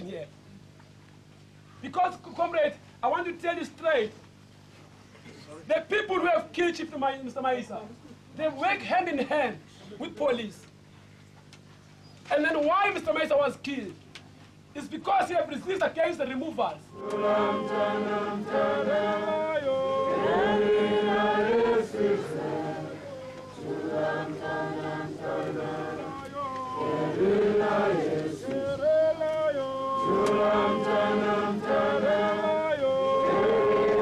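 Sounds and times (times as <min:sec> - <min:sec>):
crowd singing: 0:16.9 - 0:34.0.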